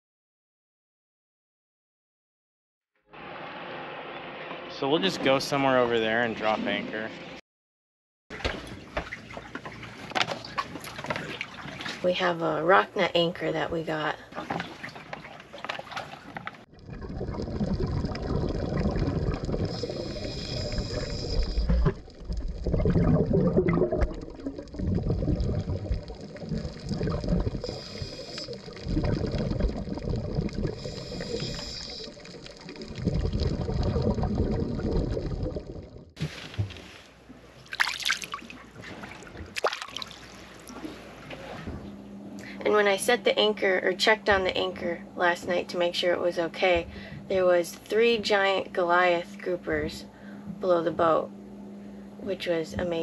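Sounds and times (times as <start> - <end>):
water sloshing and gurgling: 8.3 - 45.2.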